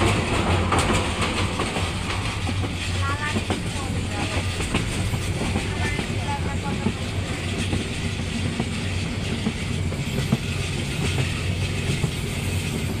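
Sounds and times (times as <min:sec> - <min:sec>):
train running noise: 0:00.0 - 0:13.0
wheels clicking over rail joints: 0:00.0 - 0:13.0.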